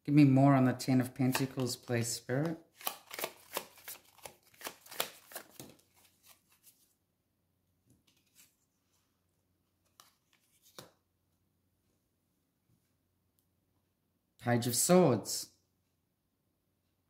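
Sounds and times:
cards clicking: 0:01.2 - 0:06.4
cards being shuffled: 0:01.2 - 0:06.9, 0:07.9 - 0:08.7, 0:09.8 - 0:11.0.

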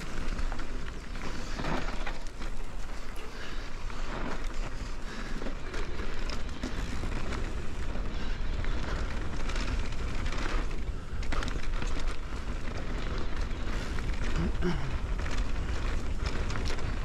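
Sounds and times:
small clicks and rattles: 0:00.0 - 0:17.0
tyres rolling on dirt: 0:00.0 - 0:17.0.

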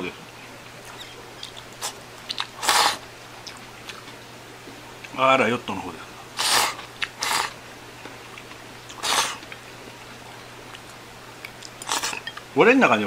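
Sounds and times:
noodles slurped from a bowl: 0:00.9 - 0:03.0, 0:06.4 - 0:07.6, 0:08.9 - 0:09.5, 0:11.8 - 0:12.2.

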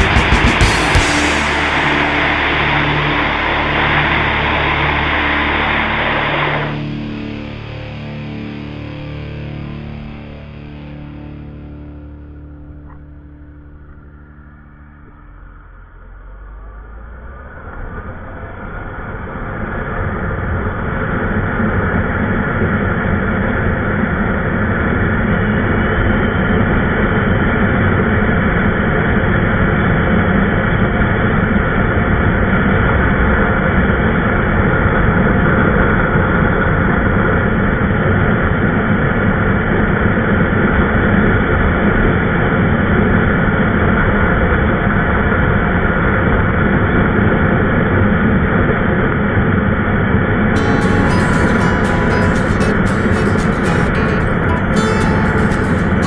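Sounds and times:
motorcycle engine: 0:00.0 - 0:08.4.

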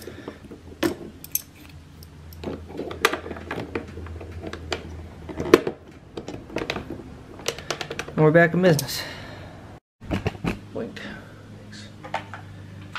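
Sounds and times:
hard plastic parts clicking: 0:02.3 - 0:08.2.

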